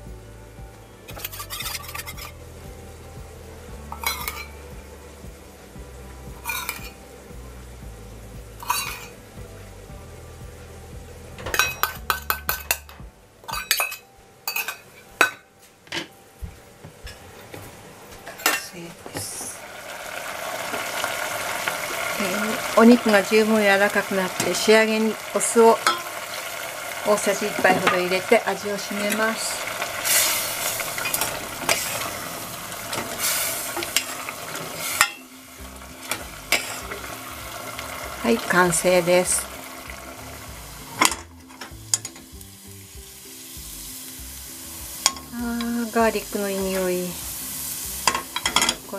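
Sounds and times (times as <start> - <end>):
pot simmering hiss: 0.0 - 48.9
metal spoon clinking on bowl: 13.5 - 15.4.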